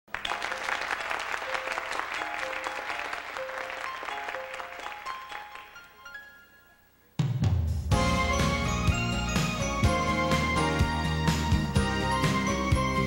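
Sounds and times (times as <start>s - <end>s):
audience applauding: 0.1s - 6.0s
slow keyboard melody: 1.4s - 7.2s, 7.9s - 13.0s.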